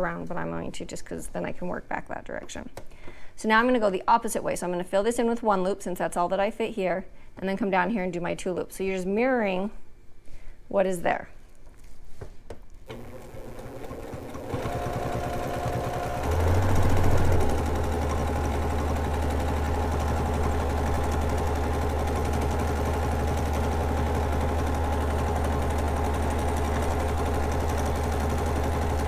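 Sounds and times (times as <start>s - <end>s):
sewing machine stitching: 12.9s - 29.0s.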